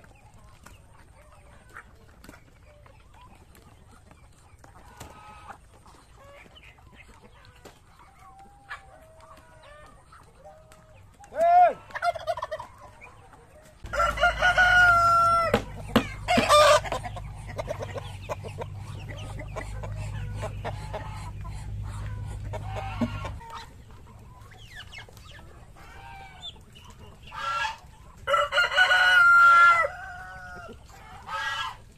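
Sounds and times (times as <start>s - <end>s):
chickens clucking: 0.0s - 31.9s
roosters crowing: 13.7s - 23.7s, 27.3s - 31.9s
low steady rumble: 13.7s - 28.3s.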